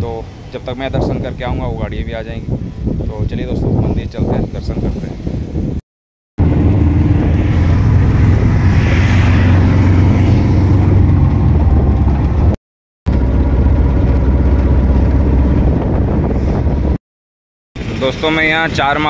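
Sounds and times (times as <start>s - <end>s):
road and wind noise: 0.0s - 5.8s, 6.4s - 17.0s, 17.8s - 19.0s
car engine running: 6.4s - 17.0s.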